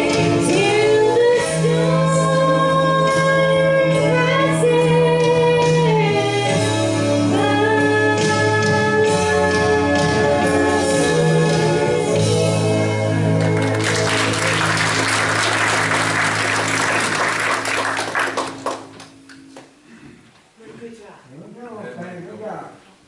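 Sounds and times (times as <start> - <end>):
woman singing: 0.0 - 10.0
backing music: 0.0 - 20.0
congregation applauding: 13.2 - 19.6.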